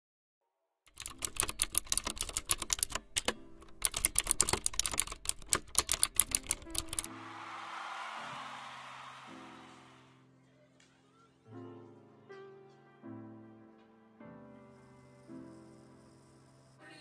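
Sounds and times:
rapid keyboard typing: 0.9s - 7.1s
soft background music: 0.9s - 7.7s, 8.3s - 17.0s.

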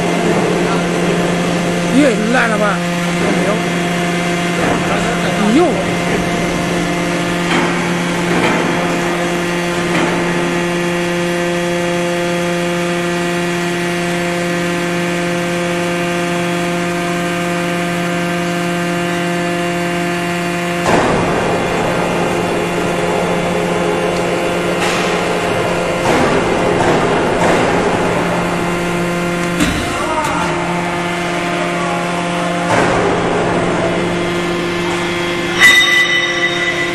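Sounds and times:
hydraulic pump humming: 0.0s - 36.9s
machine knock: 4.4s - 11.2s, 20.8s - 30.6s, 32.6s - 35.8s.

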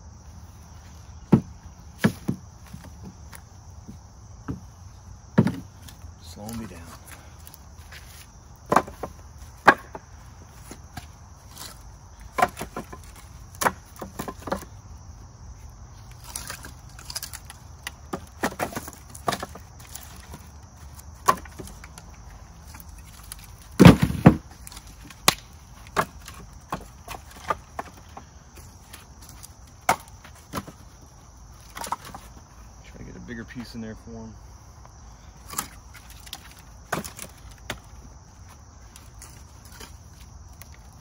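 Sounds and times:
firewood pieces clacking: 5.3s - 14.8s, 15.9s - 32.4s, 35.4s - 41.0s.

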